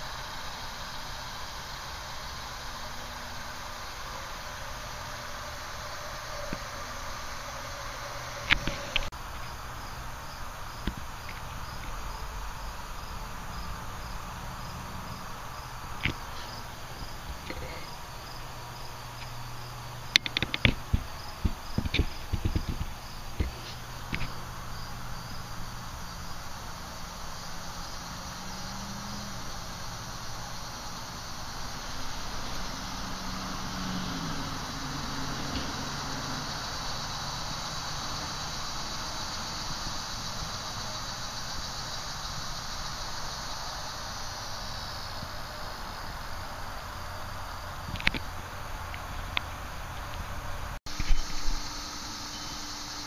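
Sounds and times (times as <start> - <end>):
background hiss: 0.0 - 53.0
cricket chirping: 0.0 - 53.0
sharp clicks and knocks: 20.1 - 24.3.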